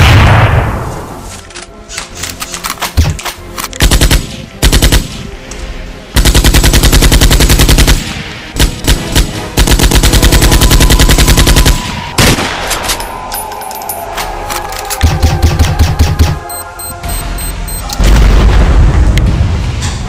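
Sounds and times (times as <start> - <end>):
airsoft rifle automatic fire: 6.2 - 12.4.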